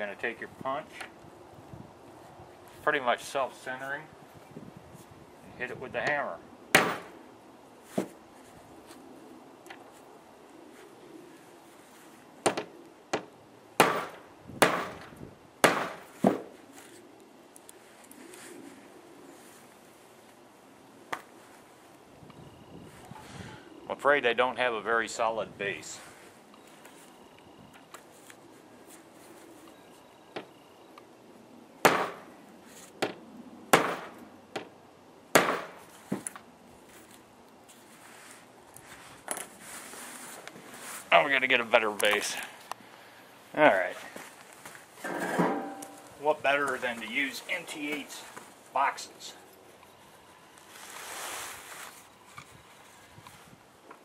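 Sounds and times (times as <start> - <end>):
hammer striking metal punch: 45.4 - 46.0.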